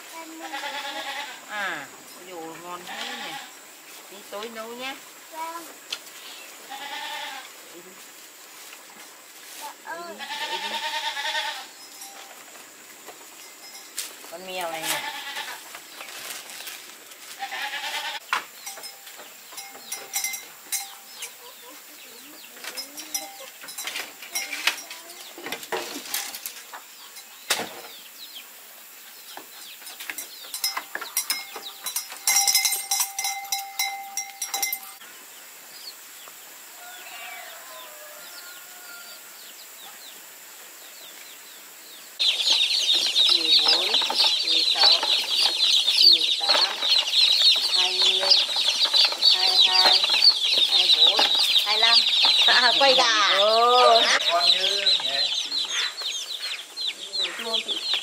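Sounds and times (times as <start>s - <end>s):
farm animal calls: 0.2s - 8.0s, 9.8s - 12.3s, 13.4s - 16.0s, 17.2s - 27.6s, 36.8s - 40.0s, 42.2s - 58.0s
baby chicks peeping: 18.1s - 35.0s, 40.8s - 58.0s
rustling and knocks: 22.6s - 28.0s.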